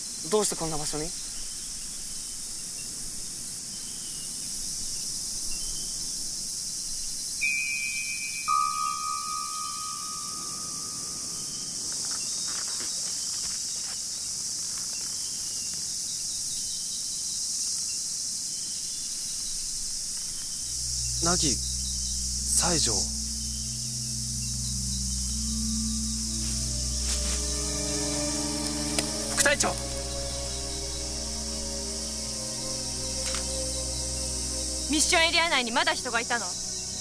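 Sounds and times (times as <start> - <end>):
insect chorus drone: 0.0 - 37.0
held tones: 7.4 - 11.3, 20.4 - 36.8.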